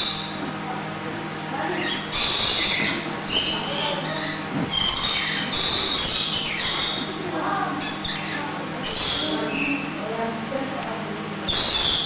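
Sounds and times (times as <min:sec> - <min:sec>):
lorikeets squawking: 0:00.0 - 0:00.4, 0:01.6 - 0:10.0, 0:11.4 - 0:12.0
low steady hum: 0:00.0 - 0:12.0.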